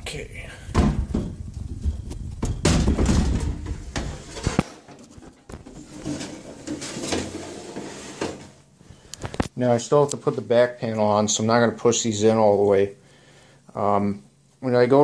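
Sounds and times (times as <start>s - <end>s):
metal case scraping along rack rails: 2.8s - 8.6s.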